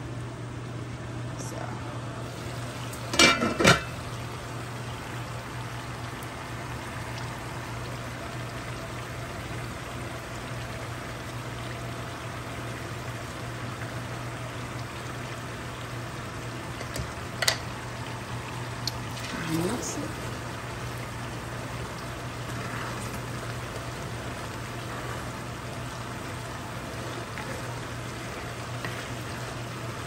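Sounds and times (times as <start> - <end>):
stew bubbling in a pot: 2.0 - 30.0.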